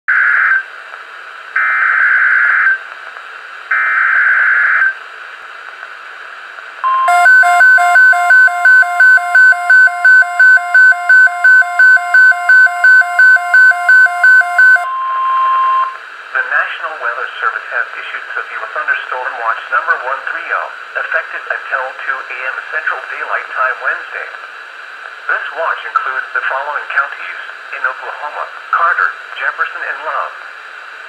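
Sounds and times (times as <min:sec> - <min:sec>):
pulsing beep: 0:06.8 - 0:16.0
steady warning alarm tone: 0:06.8 - 0:16.0
screechy digital alert header: 0:07.0 - 0:14.9.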